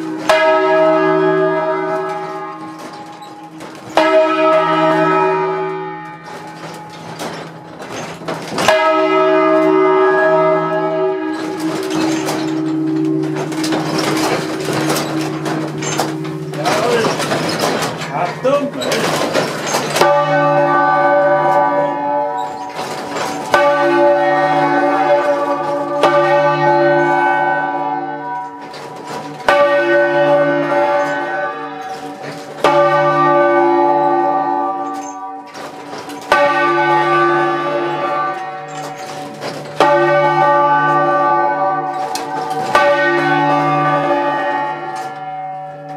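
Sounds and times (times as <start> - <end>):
church bells ringing: 0.0 - 45.9.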